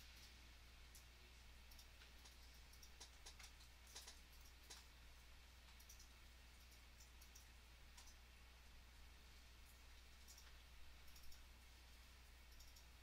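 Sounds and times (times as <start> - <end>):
low steady hum: 0.0 - 13.0
faint computer mouse clicks: 1.7 - 4.9, 5.7 - 8.2, 10.2 - 11.5, 12.5 - 13.0.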